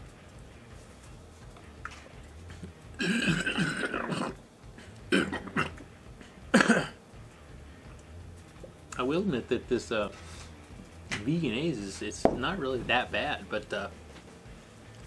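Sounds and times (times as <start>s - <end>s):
man burping loudly: 3.0s - 4.4s, 5.0s - 5.8s, 6.5s - 7.0s
throat-clearing coughs: 3.0s - 5.8s, 6.5s - 7.0s.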